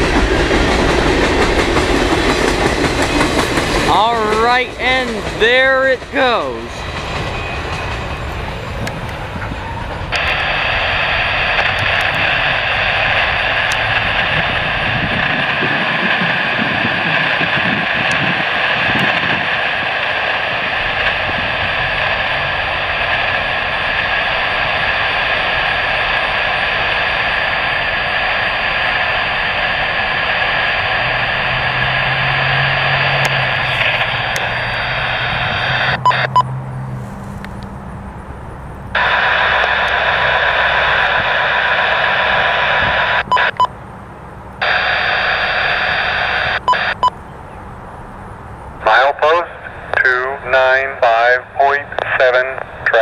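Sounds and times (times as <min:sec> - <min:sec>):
radio click: 0:10.1 - 0:10.8, 0:11.4 - 0:30.9, 0:33.2 - 0:36.4, 0:38.9 - 0:43.7, 0:44.6 - 0:47.2, 0:49.6 - 0:53.0
radio static hiss: 0:10.1 - 0:36.4, 0:38.9 - 0:43.7, 0:44.6 - 0:47.2, 0:48.6 - 0:53.0.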